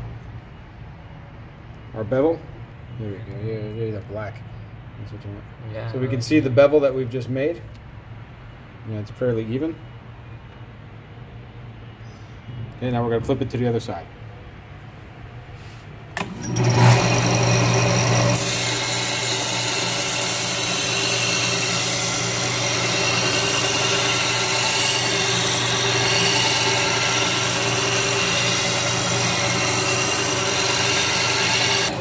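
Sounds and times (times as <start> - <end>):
belt sander motor humming: 16.2 - 32.0
blade grinding on sanding belt: 16.2 - 32.0.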